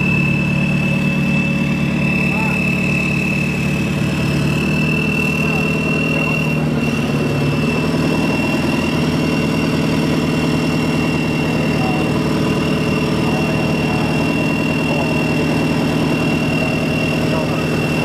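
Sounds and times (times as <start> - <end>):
diesel engine idling: 0.0 - 18.0
steady high whine: 0.0 - 18.0.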